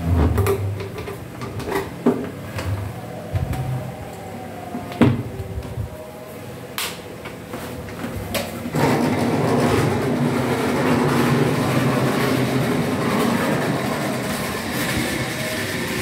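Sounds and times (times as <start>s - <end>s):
wheels rattling on rails: 7.3s - 16.0s.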